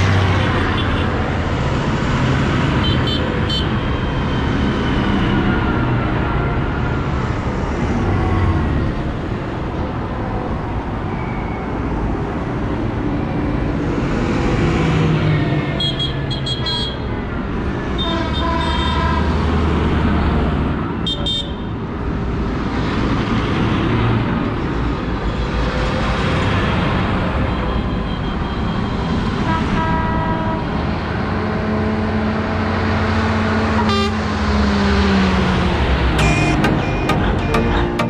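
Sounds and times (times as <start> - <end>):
tyres on road: 0.0 - 38.0
short horn toots: 36.2 - 38.0.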